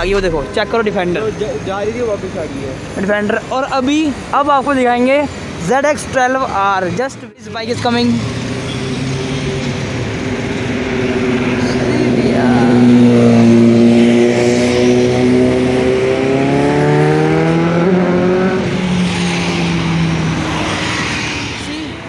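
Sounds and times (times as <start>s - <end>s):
motorcycle engine accelerating away: 11.1s - 18.7s.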